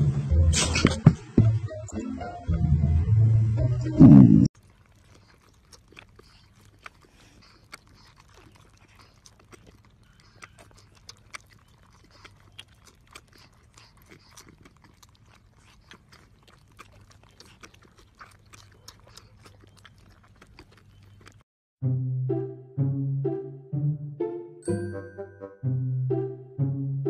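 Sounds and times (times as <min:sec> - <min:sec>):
wet sucking clicks and smacks: 0:04.6 - 0:21.4.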